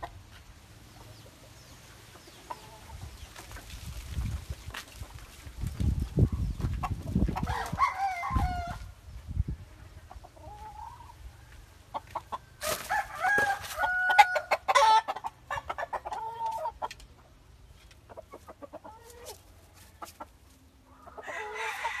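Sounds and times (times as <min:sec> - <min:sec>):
hens clucking: 0:00.0 - 0:22.0
rooster crowing: 0:07.4 - 0:08.9, 0:12.6 - 0:15.1, 0:21.2 - 0:22.0.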